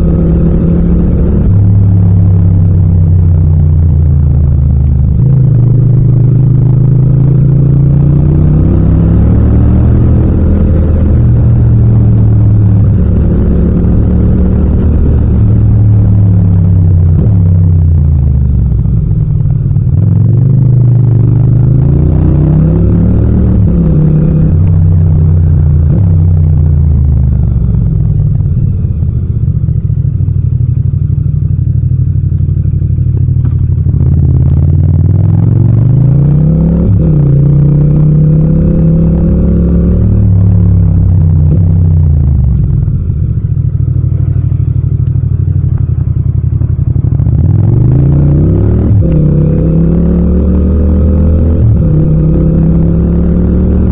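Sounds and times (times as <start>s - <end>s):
motorcycle engine accelerating: 0.0s - 53.9s.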